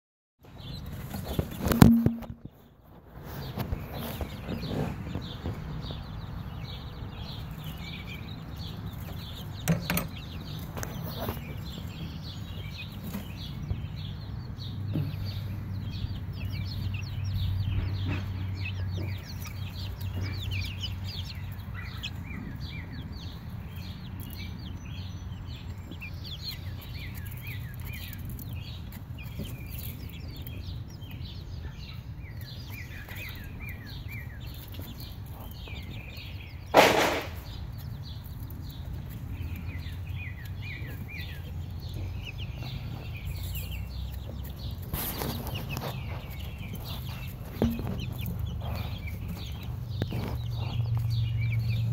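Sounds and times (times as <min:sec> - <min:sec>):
chicks peeping: 0:00.4 - 0:51.9
loud bump: 0:01.6 - 0:02.5, 0:36.7 - 0:37.6.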